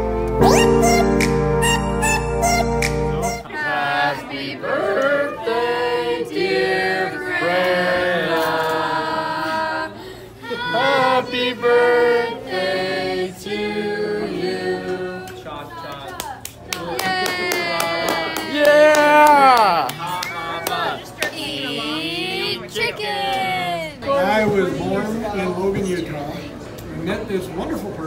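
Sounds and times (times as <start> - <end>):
background music: 0.0 - 3.5
group singing unaccompanied: 3.4 - 15.5.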